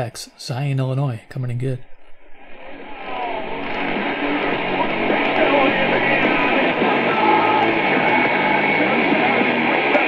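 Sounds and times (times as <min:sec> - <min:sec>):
heavy metal music on radio: 0:02.2 - 0:10.0.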